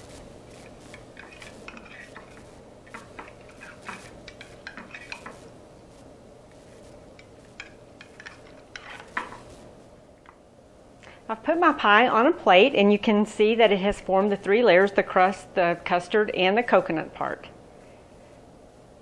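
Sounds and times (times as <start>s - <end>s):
pie server scraping glass dish: 0.6s - 5.4s, 7.2s - 9.4s.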